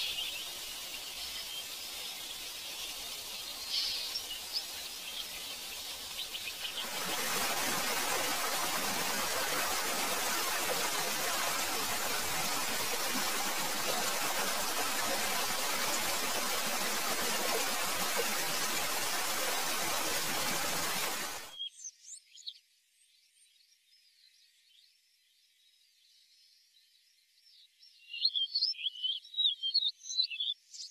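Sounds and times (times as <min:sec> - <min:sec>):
faint bird chirps: 0:00.0 - 0:07.3, 0:21.4 - 0:30.9
stream rushing over rocks: 0:00.0 - 0:21.5.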